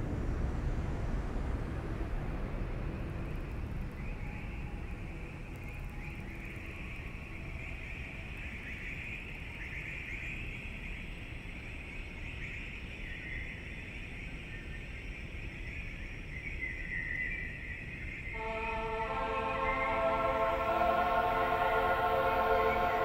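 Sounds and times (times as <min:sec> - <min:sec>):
noisy synthesizer music: 0:18.4 - 0:23.0.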